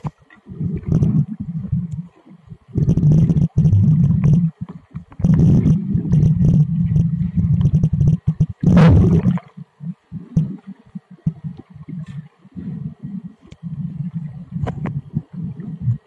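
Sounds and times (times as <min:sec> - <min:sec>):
muffled underwater rumbling: 0:00.0 - 0:16.0
water churning: 0:00.0 - 0:16.0
water whoosh: 0:05.2 - 0:09.5.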